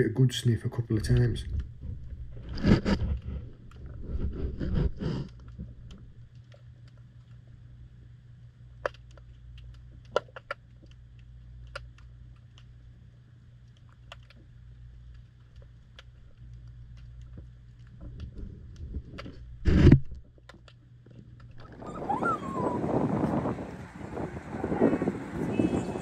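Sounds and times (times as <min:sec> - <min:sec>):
rubbing and bumping on camera housing: 0:01.5 - 0:05.8, 0:18.0 - 0:21.5.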